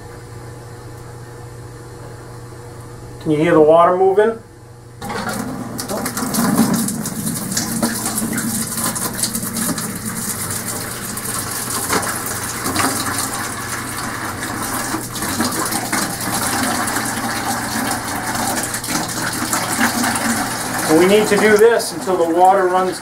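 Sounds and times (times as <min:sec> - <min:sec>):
water streaming into bucket: 0:05.0 - 0:23.0.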